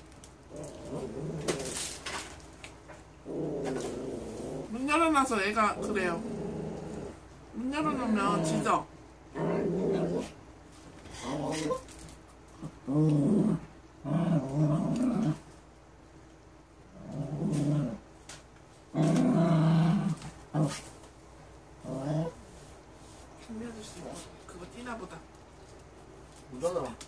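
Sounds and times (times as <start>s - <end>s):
small dog growling: 0.5s - 2.0s, 3.2s - 5.0s, 5.6s - 10.4s, 11.1s - 11.9s, 12.5s - 15.6s, 16.9s - 18.1s, 18.9s - 21.0s, 21.8s - 22.5s.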